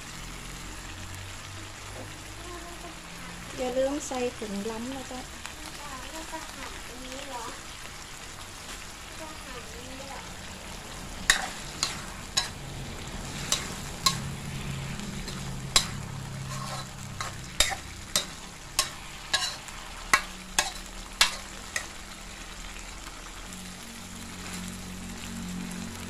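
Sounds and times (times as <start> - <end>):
frying sizzle: 0.0 - 26.0
metal ladle scraping a wok: 11.2 - 22.2.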